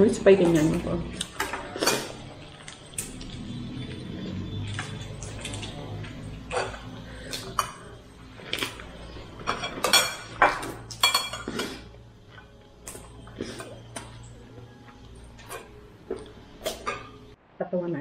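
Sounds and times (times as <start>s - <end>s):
tableware clinking: 0.4s - 3.4s, 4.6s - 12.6s, 15.3s - 17.3s.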